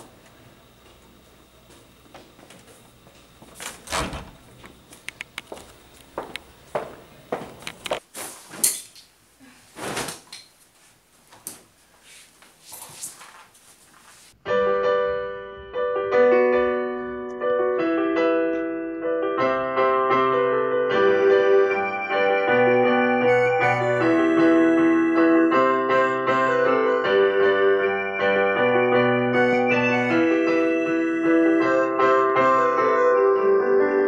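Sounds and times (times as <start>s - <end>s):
handling rustling and thuds: 9.7s - 10.3s
piano music: 14.4s - 34.0s.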